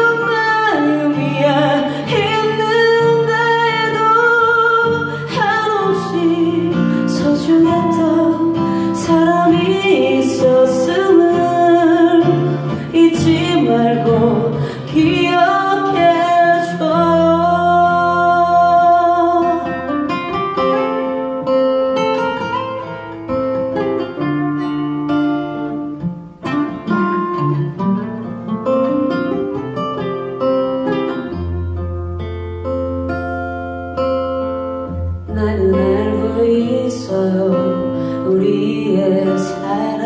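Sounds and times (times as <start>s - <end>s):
woman singing: 0.0s - 21.1s, 35.2s - 40.0s
acoustic guitars playing: 0.0s - 40.0s.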